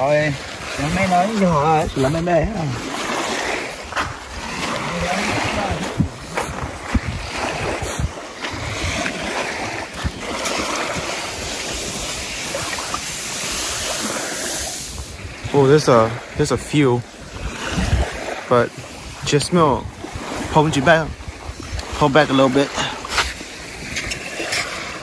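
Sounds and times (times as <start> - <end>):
sharp knocks or splashes: 0.0 - 13.1, 22.7 - 25.0
lake waves washing in: 0.0 - 25.0
wind buffeting microphone: 0.0 - 25.0.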